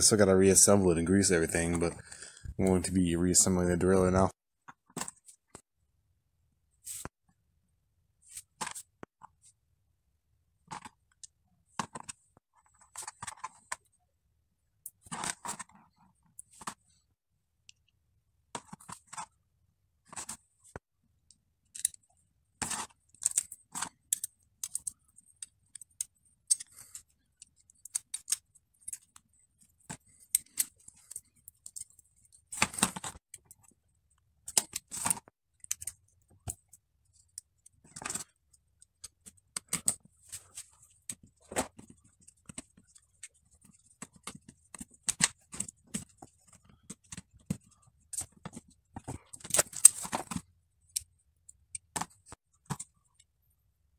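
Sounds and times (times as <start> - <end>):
small metal parts clicking and rattling: 21.6 - 33.8, 34.4 - 52.9.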